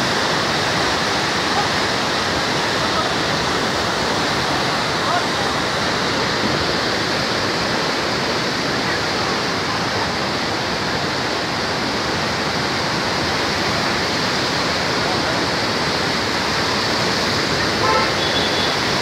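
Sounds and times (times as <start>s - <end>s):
river water rushing: 0.0s - 19.0s.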